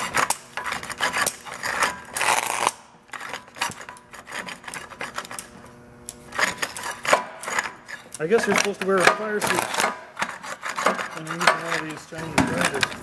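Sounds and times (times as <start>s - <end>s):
faint electrical hum: 0.0s - 13.0s
motor crackling and sputtering: 1.3s - 2.8s.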